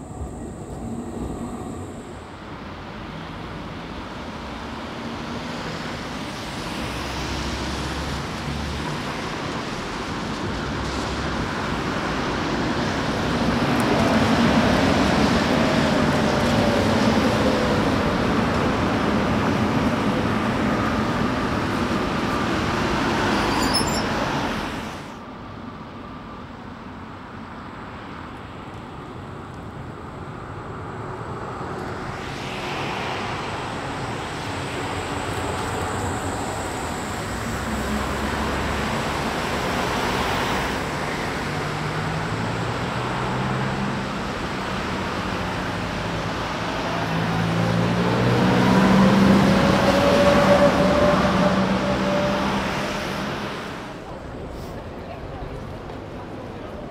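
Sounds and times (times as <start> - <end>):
tram motor whine: 0.0 - 4.7, 31.8 - 42.3
street noise: 0.0 - 56.9
trams rumbling past: 0.0 - 56.9.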